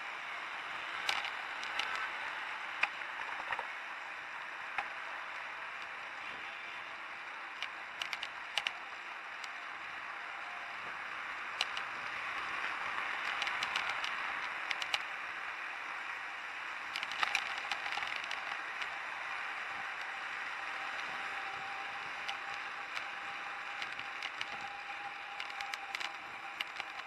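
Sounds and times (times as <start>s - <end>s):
street traffic hiss: 0.0s - 27.0s
small sharp clicks: 1.0s - 2.1s, 7.5s - 8.8s, 11.6s - 15.1s, 16.9s - 19.0s, 19.9s - 27.0s.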